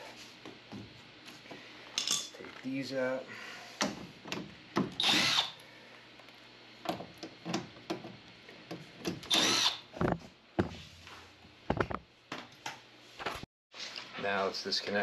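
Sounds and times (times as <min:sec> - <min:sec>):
cordless drill whirring: 0:05.0 - 0:05.6, 0:09.3 - 0:09.8.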